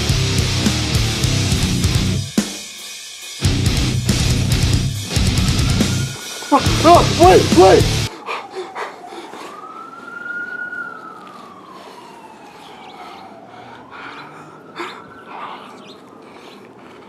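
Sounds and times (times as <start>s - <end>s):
siren-like wail: 5.0s - 16.8s.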